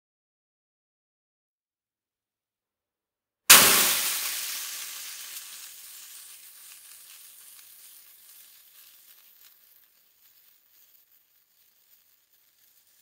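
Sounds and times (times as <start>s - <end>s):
faint crackles: 3.5s - 13.0s
water sizzling on hotplate: 3.5s - 13.0s.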